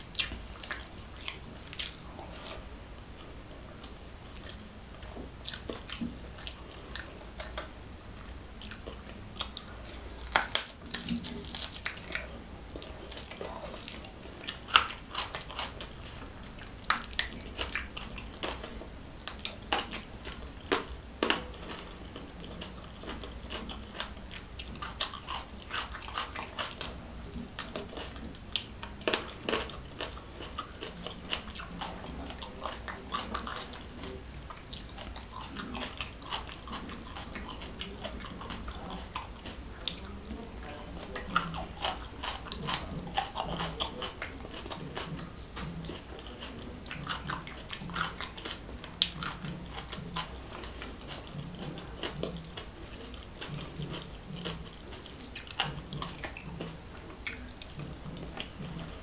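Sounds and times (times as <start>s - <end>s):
chewing and wet mouth sounds: 0.0s - 59.0s
sharp lip smacks and clicks: 9.4s - 12.1s.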